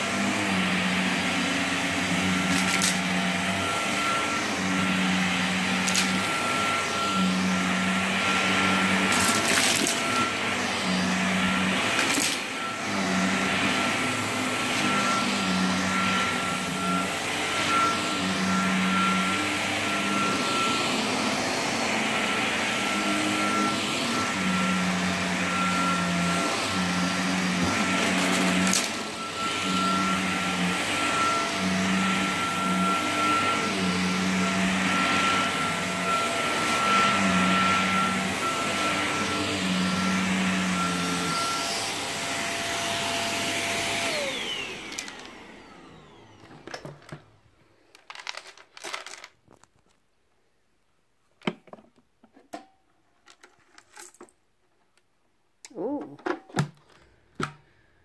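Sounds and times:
vacuum cleaner motor whine: 0.0s - 48.4s.

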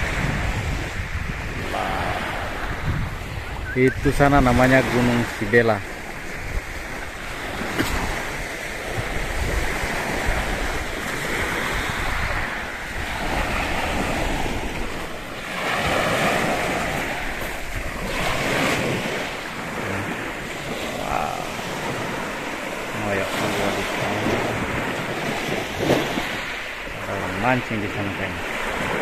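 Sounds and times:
sea waves washing onto beach: 0.0s - 29.0s
wind buffeting microphone: 0.0s - 29.0s.

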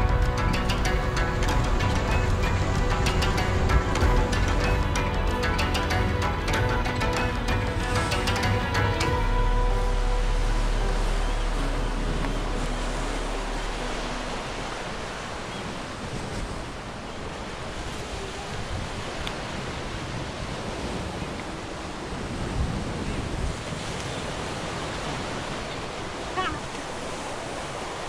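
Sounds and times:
ocean waves breaking on beach: 0.0s - 28.0s
wind buffeting microphone: 0.0s - 28.0s.

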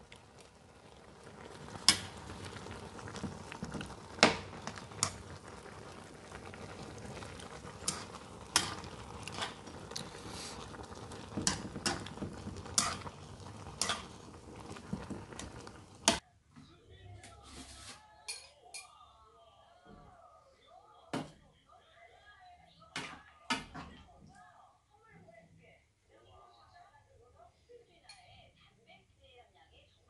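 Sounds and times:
broth bubbling in a pan: 0.0s - 16.2s.

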